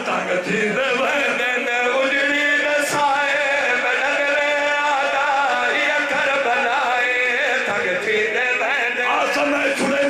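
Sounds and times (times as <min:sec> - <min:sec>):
man chanting through microphone: 0:00.0 - 0:10.0.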